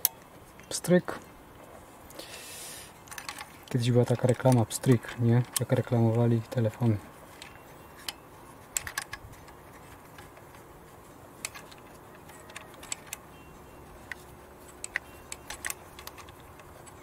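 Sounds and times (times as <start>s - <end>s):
plastic connectors clicking: 3.0s - 10.7s, 11.4s - 13.3s, 13.9s - 17.0s.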